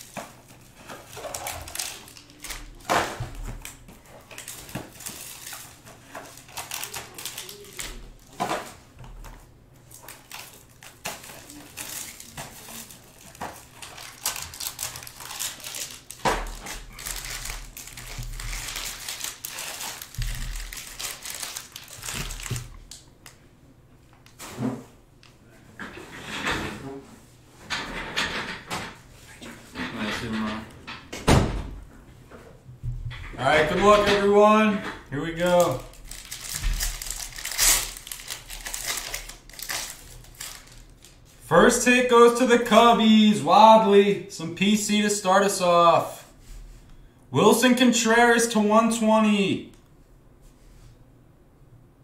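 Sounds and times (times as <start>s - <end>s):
foil crinkling: 0.0s - 8.4s, 9.8s - 23.4s, 35.2s - 41.3s.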